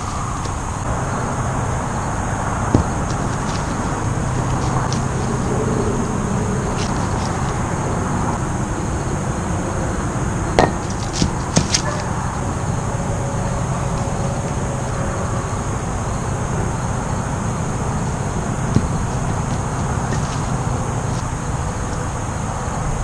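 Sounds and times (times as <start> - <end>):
distant traffic hum: 0.0 - 23.0
wooden pieces clacking: 10.6 - 12.0, 18.7 - 21.2.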